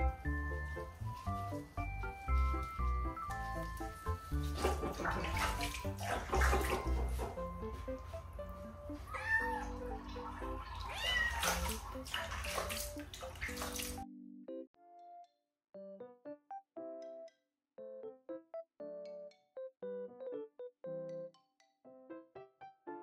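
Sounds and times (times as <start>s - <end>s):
water splashing: 0.0s - 8.1s, 8.9s - 14.0s
rubbing wet fur: 0.0s - 14.0s
kitten meowing: 9.1s - 10.0s, 10.8s - 11.8s.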